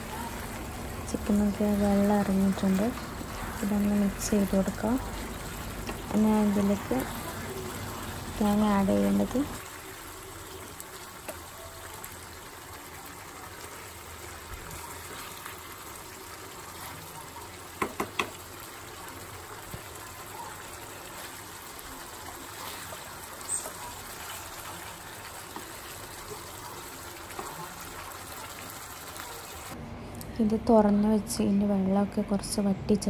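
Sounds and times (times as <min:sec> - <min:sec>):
chicken simmering with bubbling hiss: 0:00.0 - 0:29.8
spatula knocking against pan: 0:17.8 - 0:18.4.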